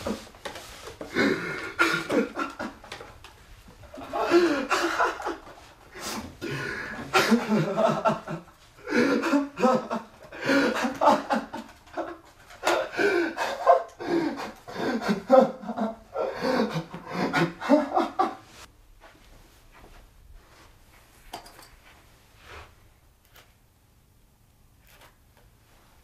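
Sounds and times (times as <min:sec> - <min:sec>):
man breathing: 0:00.9 - 0:02.2, 0:05.9 - 0:07.4, 0:08.8 - 0:11.0, 0:12.7 - 0:15.3
man laughing: 0:01.1 - 0:03.1, 0:03.9 - 0:05.7, 0:06.4 - 0:18.6.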